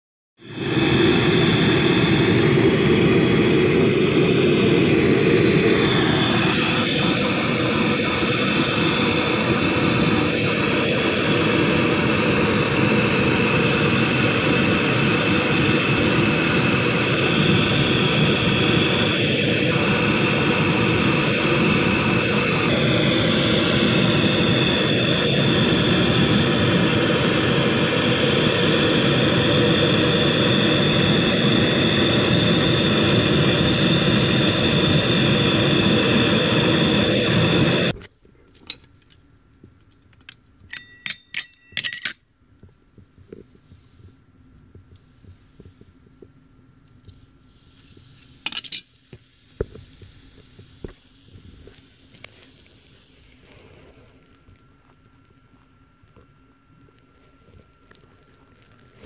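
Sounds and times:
blowtorch rushing hiss: 0.4 - 38.0, 47.4 - 54.6.

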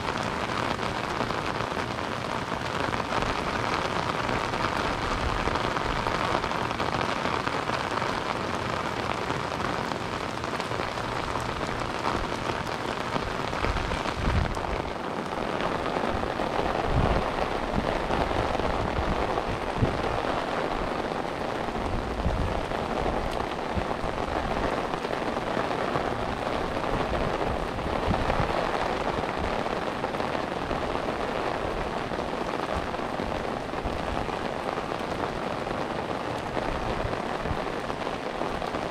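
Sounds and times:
rain pattering: 0.0 - 38.9.

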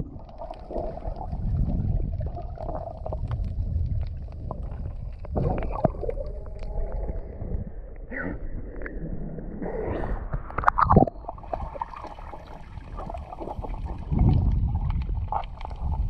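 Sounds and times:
seawater sloshing and gurgling: 0.0 - 7.6, 10.0 - 16.0
low rumble: 0.0 - 11.6, 13.6 - 16.0.

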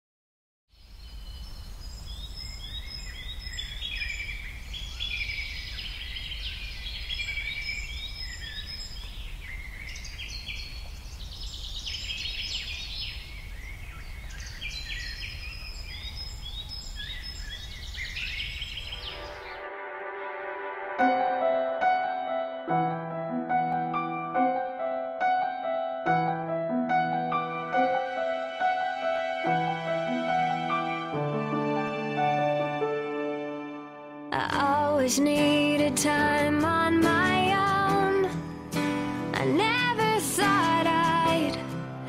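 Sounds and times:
songbirds singing and chirping: 0.7 - 19.6.

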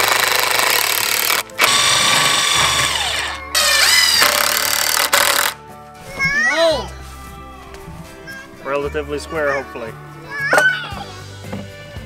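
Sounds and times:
power drill driving screws: 0.0 - 5.6.

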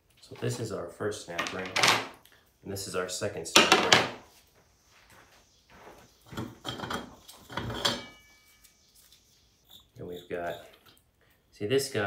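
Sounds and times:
metal clanking and scraping: 6.3 - 8.5
metal piece ringing: 6.6 - 8.7.

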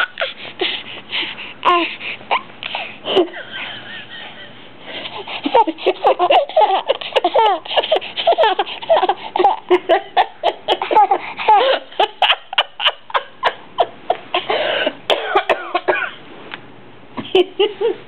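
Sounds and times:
baby giggling: 0.0 - 0.4, 5.1 - 14.6.

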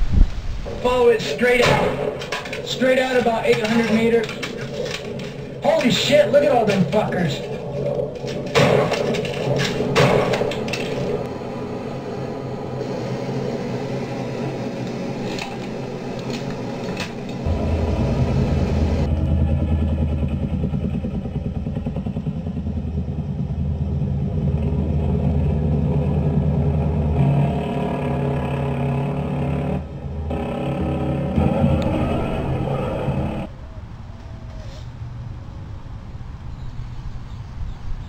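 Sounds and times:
helicopter engine and rotor drone: 1.3 - 33.5
sharp knocks: 8.3 - 11.2.

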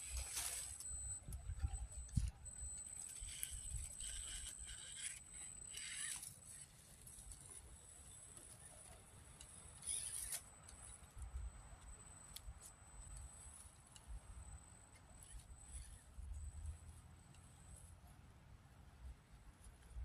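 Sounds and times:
toy car tyres scrabbling: 0.0 - 1.1, 1.8 - 10.9
faint high motor whine: 0.0 - 20.0.

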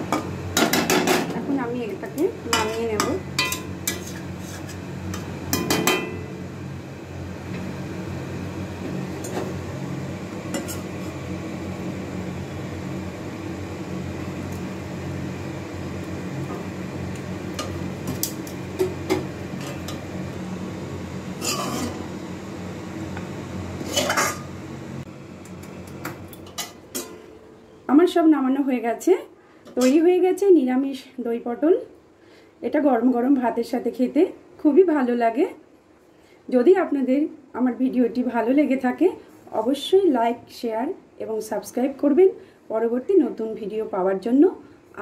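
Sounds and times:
metal spoon scraping a pan: 2.5 - 4.8, 21.4 - 22.0, 23.8 - 24.5.

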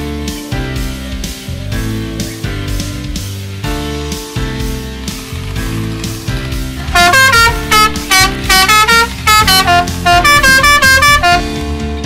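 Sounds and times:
background music: 0.0 - 12.0
short loud horn-like notes: 6.8 - 11.6.

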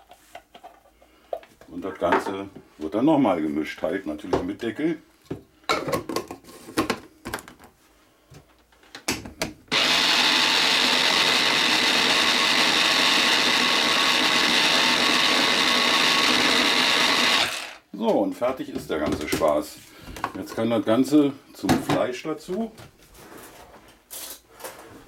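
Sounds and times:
electric chopper motor running: 9.7 - 17.8.

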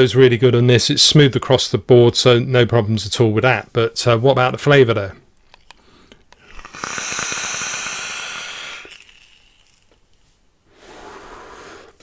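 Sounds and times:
coil crackling: 5.5 - 10.8
breathy exhale: 5.8 - 9.8, 10.6 - 12.0
airflow hiss through tank: 6.4 - 12.0.

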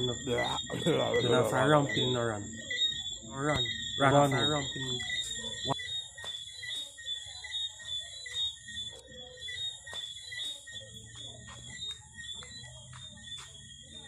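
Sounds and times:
faint murmuring: 0.0 - 5.9
insects trilling: 0.0 - 14.0.

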